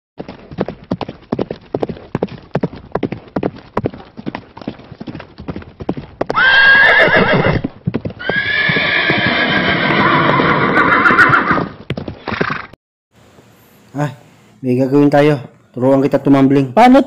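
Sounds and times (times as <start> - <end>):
horse hooves clip-clopping: 0.2 - 12.8
horse whinnying: 6.3 - 12.8.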